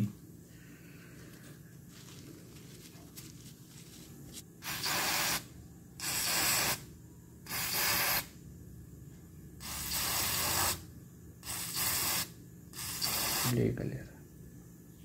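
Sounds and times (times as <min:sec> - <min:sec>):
aerosol spray hissing: 0:04.6 - 0:06.8, 0:07.5 - 0:08.3, 0:09.6 - 0:10.8, 0:11.4 - 0:13.6.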